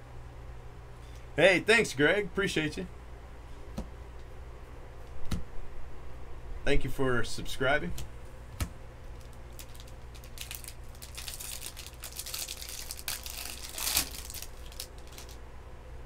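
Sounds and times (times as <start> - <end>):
foil wrapper crinkling: 9.0 - 15.4
foil wrapper ripping: 9.1 - 15.4.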